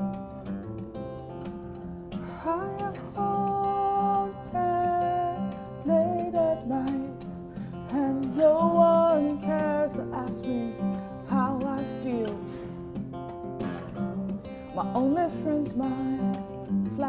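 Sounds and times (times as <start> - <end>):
acoustic guitar: 0.0 - 17.0
woman singing: 2.1 - 12.8, 14.6 - 17.0.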